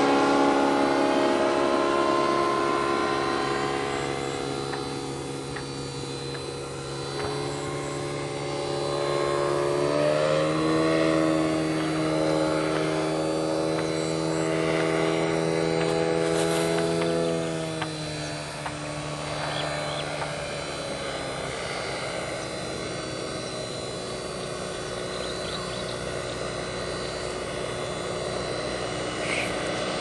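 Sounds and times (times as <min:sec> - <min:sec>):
light aircraft engine and propeller: 0:00.0 - 0:30.0.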